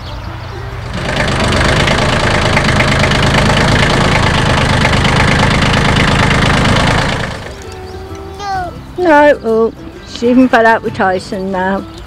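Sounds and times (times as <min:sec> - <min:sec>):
tractor engine running: 0:00.6 - 0:07.8.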